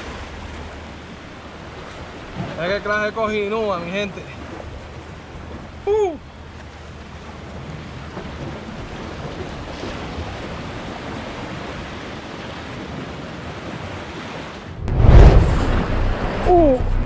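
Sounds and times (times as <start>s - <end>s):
sea waves against rocks: 0.0s - 17.0s
wind buffeting microphone: 6.8s - 17.0s.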